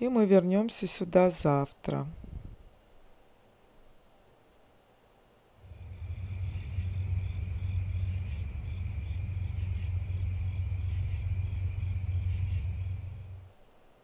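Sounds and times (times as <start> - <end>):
steady low rumble: 5.6 - 13.5
night insects chirping: 5.6 - 13.9.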